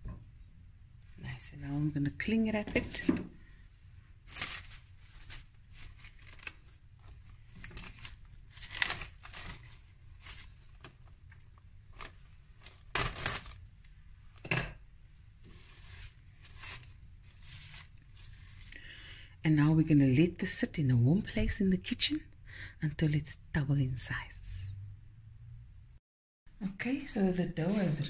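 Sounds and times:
cling film rustling and tearing: 0:04.2 - 0:13.9, 0:15.4 - 0:18.8.

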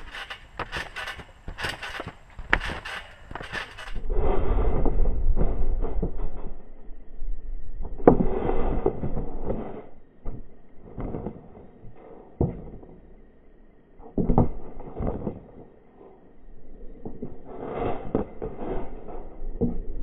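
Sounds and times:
board thudding on trampoline mat: 0:00.0 - 0:04.0.

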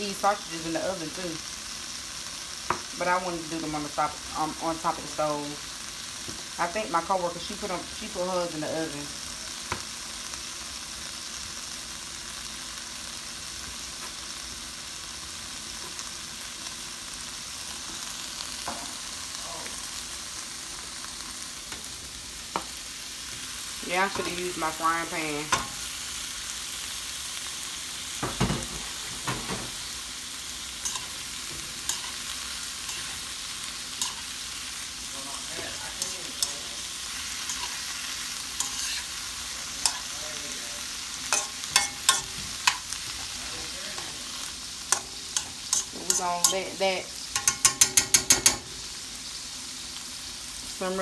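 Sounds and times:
food sizzling in a wok: 0:00.0 - 0:51.0
metal utensils scraping pan: 0:30.8 - 0:33.3, 0:37.4 - 0:37.9, 0:38.6 - 0:39.2, 0:41.3 - 0:43.0, 0:44.9 - 0:48.6.

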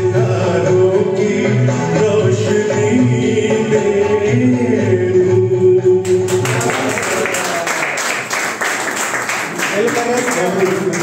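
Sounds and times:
man singing into a microphone: 0:00.0 - 0:06.3
backing music: 0:00.0 - 0:08.6
applause: 0:06.3 - 0:11.0.

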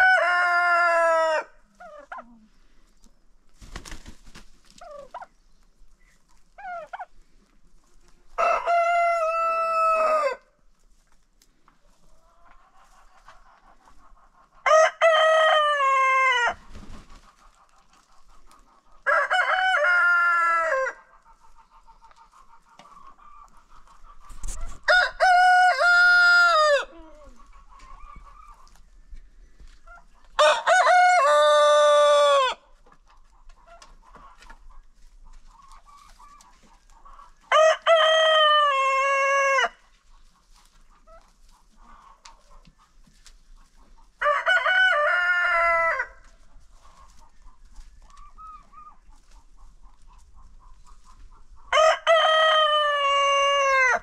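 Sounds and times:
roosters crowing: 0:00.0 - 0:01.6, 0:08.4 - 0:10.5, 0:14.6 - 0:16.7, 0:19.0 - 0:21.1, 0:24.8 - 0:27.0, 0:30.4 - 0:32.7, 0:37.5 - 0:39.8, 0:44.2 - 0:46.3, 0:51.7 - 0:54.0
chickens clucking: 0:00.0 - 0:30.7, 0:31.3 - 0:54.0.

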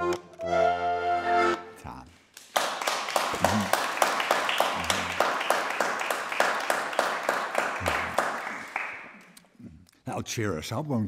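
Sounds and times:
audience clapping: 0:02.3 - 0:09.5.

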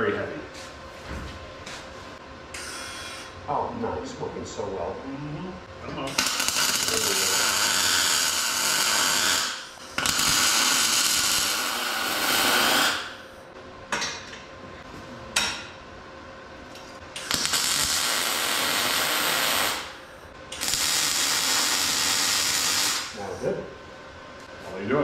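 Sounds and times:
mig welder buzzing: 0:02.5 - 0:03.4, 0:06.0 - 0:13.5, 0:16.7 - 0:23.3.

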